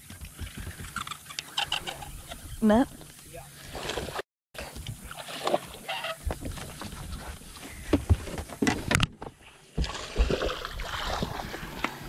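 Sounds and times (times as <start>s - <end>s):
knocks and thumps in a boat: 0.0s - 12.0s.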